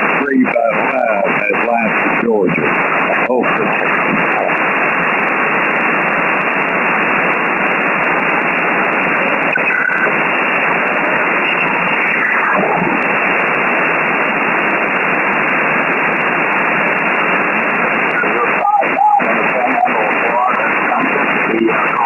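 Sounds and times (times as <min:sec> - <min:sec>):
falling pitch radio signal: 0:00.0 - 0:22.0
radio static hiss: 0:00.0 - 0:22.0
radio whistle: 0:09.3 - 0:10.2, 0:11.2 - 0:13.2, 0:17.8 - 0:22.0.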